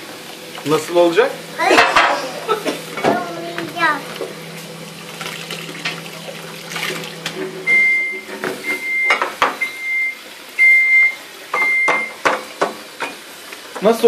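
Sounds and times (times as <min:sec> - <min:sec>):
plates clinking in a sink: 0:01.7 - 0:03.2, 0:08.2 - 0:09.7, 0:11.5 - 0:13.2
high electronic beep: 0:07.7 - 0:12.2.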